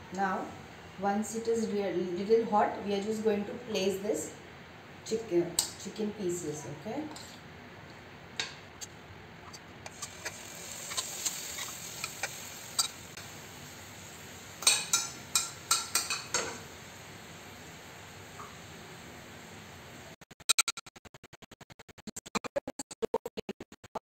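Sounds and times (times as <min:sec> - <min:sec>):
light sizzle in frying pan: 0:09.8 - 0:20.1
spoon tapping bowl and pan: 0:14.6 - 0:16.6.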